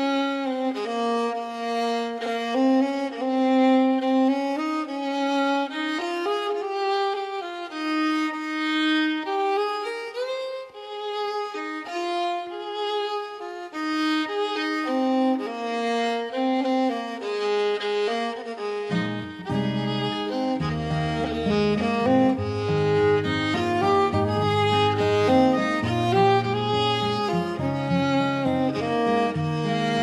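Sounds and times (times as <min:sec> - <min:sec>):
slow violin melody: 0:00.0 - 0:30.0.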